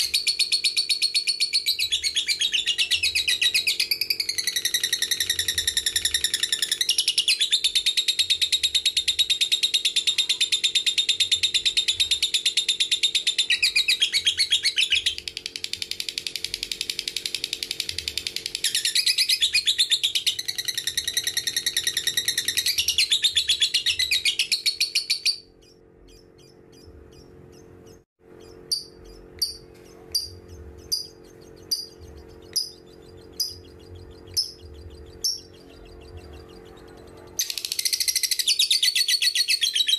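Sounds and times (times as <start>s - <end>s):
bird chattering trill: 0.0s - 39.9s
sharp bird chirps: 10.6s - 39.9s.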